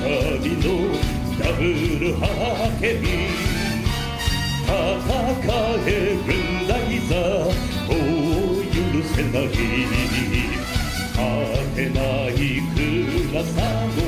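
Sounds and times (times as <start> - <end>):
full band playing: 0.0 - 14.0
man singing with vibrato: 0.0 - 14.0.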